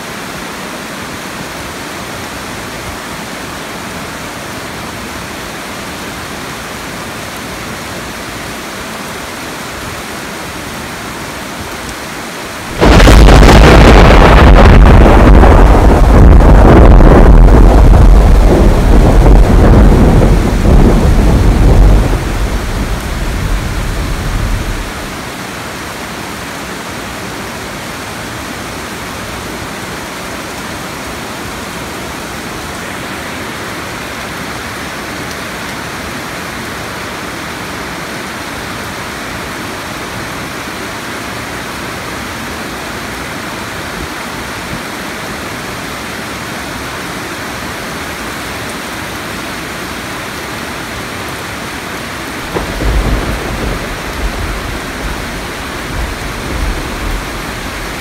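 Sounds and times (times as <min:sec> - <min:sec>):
heavy rain: 0:00.0 - 0:58.0
thunder rumble: 0:12.7 - 0:25.2, 0:52.4 - 0:58.0.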